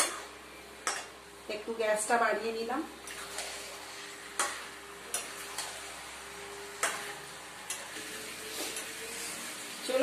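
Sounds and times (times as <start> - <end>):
curry sizzling in a pan: 0.0 - 10.0
spatula knocking and scraping pan: 4.3 - 5.7, 6.8 - 8.9.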